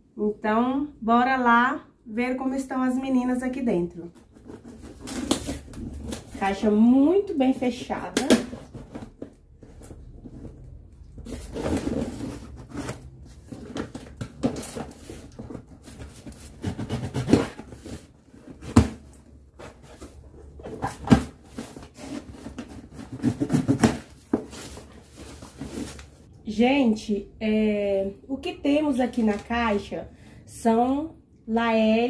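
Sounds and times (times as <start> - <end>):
cardboard and tape scraping: 4.2 - 6.6, 7.9 - 26.2.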